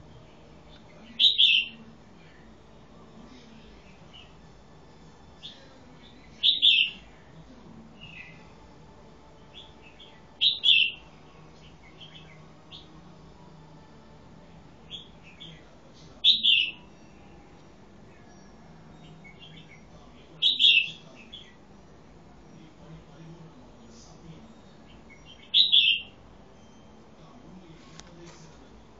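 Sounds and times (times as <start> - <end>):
bulbul calling: 0.7 - 1.8, 6.2 - 7.1, 9.5 - 12.9, 16.2 - 16.9, 19.0 - 21.6, 24.8 - 26.2.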